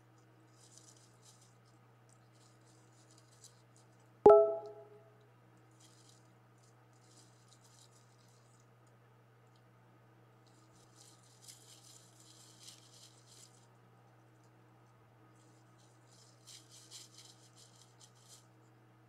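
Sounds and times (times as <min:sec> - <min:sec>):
rustling in dry leaves: 0:10.8 - 0:13.6, 0:16.1 - 0:18.4.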